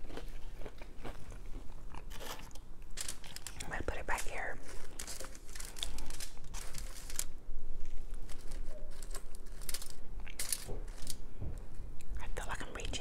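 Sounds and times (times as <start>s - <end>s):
chewing: 0.0s - 3.7s
foil crinkling: 2.0s - 11.2s.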